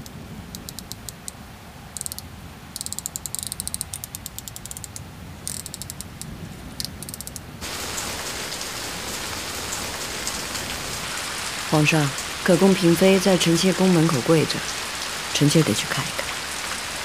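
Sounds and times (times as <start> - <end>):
steady rain: 0.0 - 17.0
clock movement ratcheting clicks: 2.0 - 2.2.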